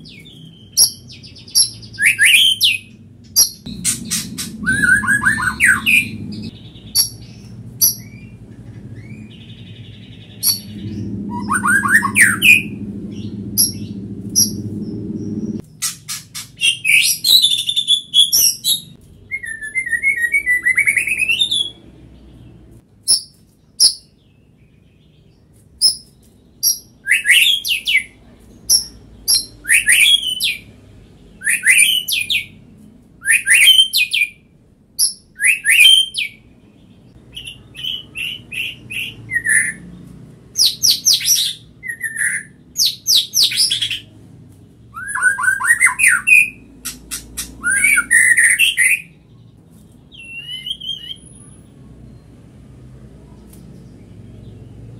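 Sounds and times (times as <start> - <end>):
bird singing whistles and chips: 0.0 - 9.5, 15.6 - 21.8, 25.8 - 30.6, 35.0 - 36.4, 44.9 - 49.2, 50.1 - 51.5.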